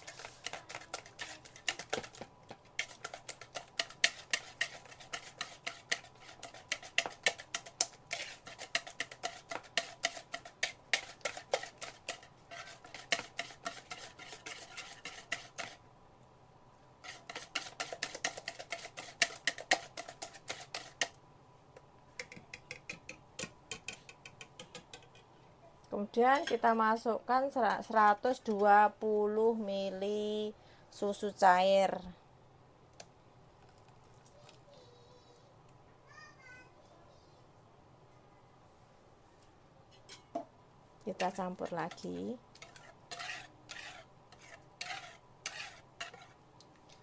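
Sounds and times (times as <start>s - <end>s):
whisk clicking against bowl: 0.0s - 15.8s, 17.1s - 21.2s.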